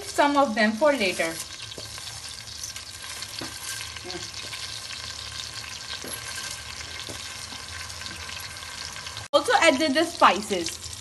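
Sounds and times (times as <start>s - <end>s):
onions sizzling in oil: 0.0s - 11.0s
ladle scraping and knocking pot: 5.9s - 8.3s.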